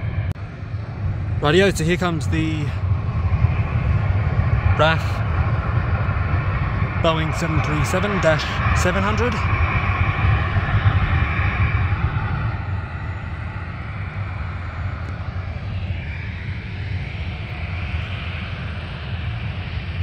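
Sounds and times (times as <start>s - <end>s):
distant jet engines rumbling: 0.0s - 20.0s
high engine whine: 0.0s - 20.0s.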